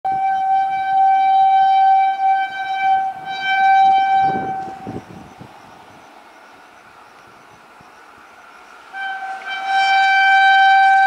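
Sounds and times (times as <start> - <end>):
locomotive horn blast: 0.1 - 5.3, 8.8 - 11.0.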